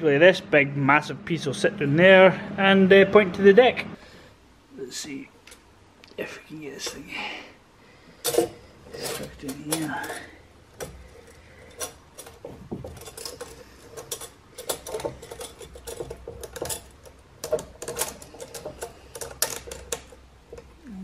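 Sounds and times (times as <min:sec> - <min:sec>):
metal clicks and scrapes: 0:08.2 - 0:20.8.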